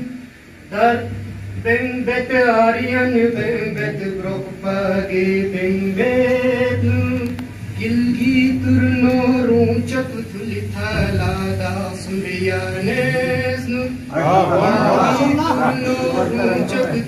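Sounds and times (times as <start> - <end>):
man chanting melodically: 0.0 - 17.0.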